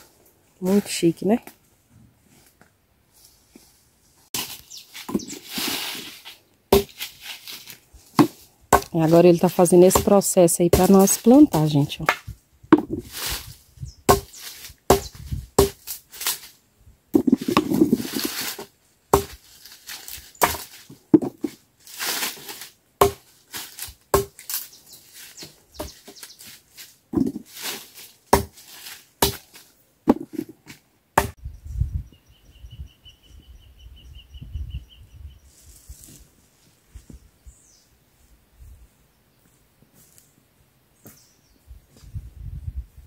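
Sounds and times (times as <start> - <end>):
scraping rustles: 1.6 - 8.4, 17.2 - 30.8
blade chopping stems on board: 28.3 - 28.6.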